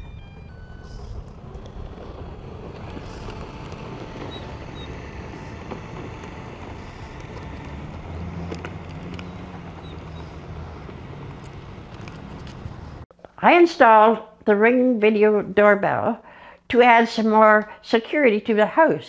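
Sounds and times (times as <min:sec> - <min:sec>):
low rumble: 0:00.0 - 0:13.1.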